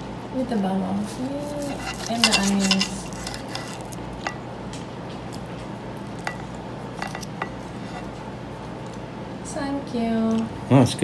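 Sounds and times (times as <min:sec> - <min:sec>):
cutlery scraping a plate: 0:01.6 - 0:04.4, 0:06.2 - 0:08.2.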